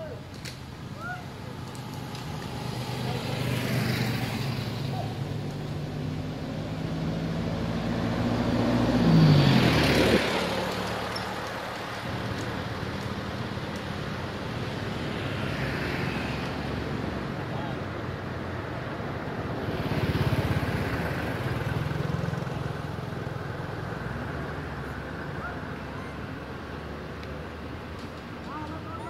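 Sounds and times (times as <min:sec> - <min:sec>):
motor vehicle passing: 0:00.9 - 0:17.8.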